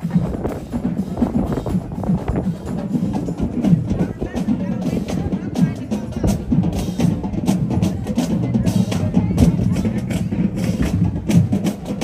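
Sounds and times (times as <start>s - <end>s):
bass drums: 0.0s - 12.0s
snare drums: 0.0s - 12.0s.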